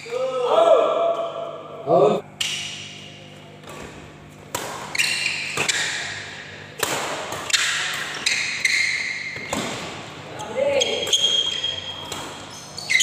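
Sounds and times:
rackets smacking shuttlecock: 3.6s - 10.0s
shoes squeaking on floor: 4.9s - 5.9s, 7.4s - 9.6s, 10.3s - 13.0s.

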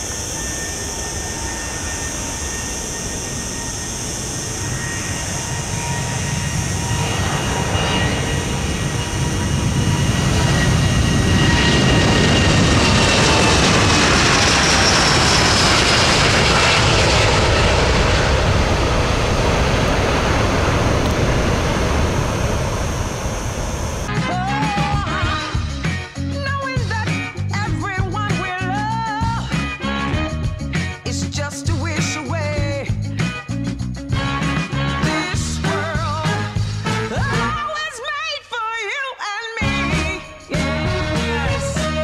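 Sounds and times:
jet airliner taking off: 0.0s - 25.7s
high engine whine: 0.0s - 37.7s, 39.6s - 42.0s.

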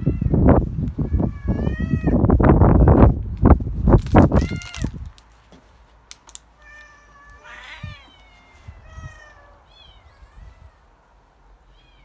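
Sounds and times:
cat meowing: 6.6s - 10.8s, 11.6s - 12.0s.

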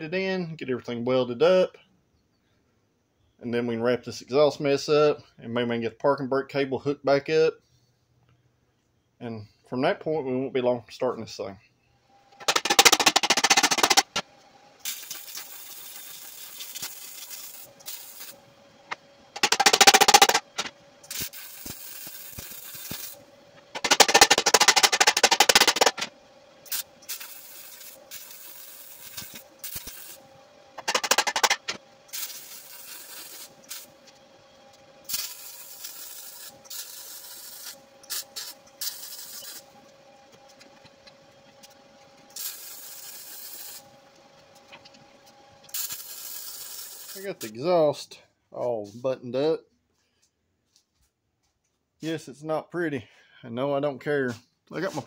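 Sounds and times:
scraping and rubbing: 12.4s - 14.2s, 19.4s - 26.1s, 30.8s - 33.9s
power tools grinding steel pipe: 12.4s - 47.7s.

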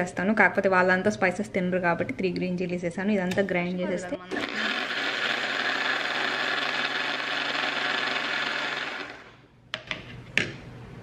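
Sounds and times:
mixer grinder running: 4.3s - 9.4s.

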